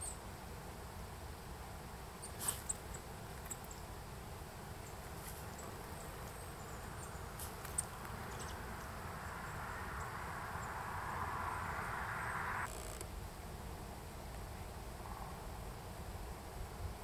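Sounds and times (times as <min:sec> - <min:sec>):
steady outdoor hiss: 0:00.0 - 0:17.0
small birds calling: 0:04.8 - 0:12.3
rushing noise: 0:08.2 - 0:13.1.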